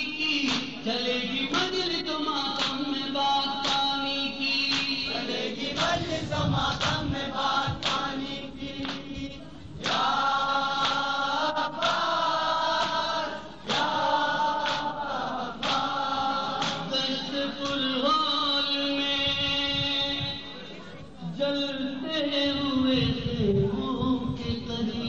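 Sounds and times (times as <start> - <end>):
man chanting a lament: 0.0 - 10.7, 14.0 - 25.0
chest-beating slaps: 0.5 - 0.8, 2.6 - 2.8, 3.6 - 3.9, 4.7 - 5.0, 5.8 - 6.0, 7.8 - 8.1, 15.6 - 15.9, 16.6 - 16.9
group of voices chanting: 4.7 - 17.8.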